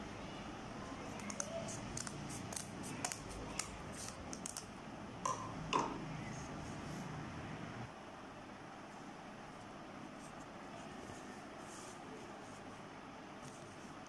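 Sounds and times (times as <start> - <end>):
scissors snipping paper: 1.2 - 4.7.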